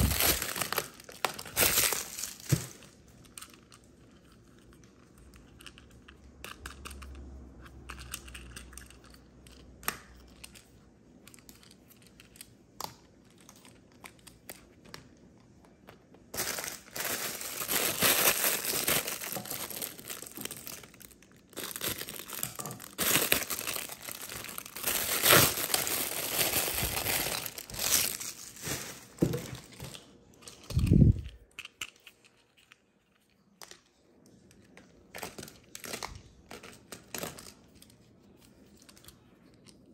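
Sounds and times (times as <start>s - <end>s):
plastic bag crinkling: 0.0s - 3.8s, 16.3s - 31.5s.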